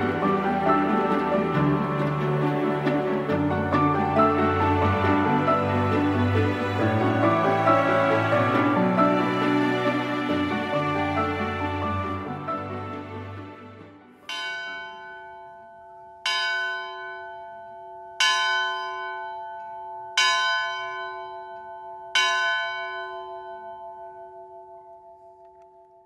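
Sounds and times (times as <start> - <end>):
church bell ringing: 0.0 - 12.3, 14.2 - 26.0
background music: 0.0 - 17.0.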